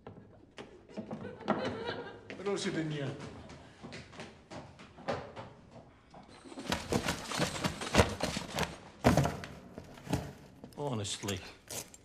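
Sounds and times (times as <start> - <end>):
objects knocking: 5.0 - 10.7
paper rustling: 6.4 - 9.2.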